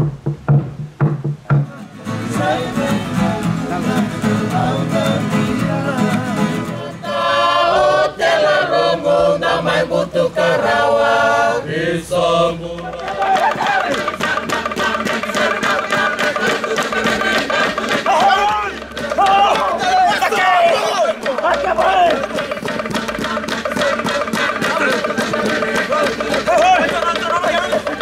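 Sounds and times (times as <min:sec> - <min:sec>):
wooden slit drum beating: 0:00.0 - 0:01.9, 0:12.8 - 0:28.0
guitars and ukulele strumming: 0:00.0 - 0:07.2
men singing in harmony: 0:01.6 - 0:28.0.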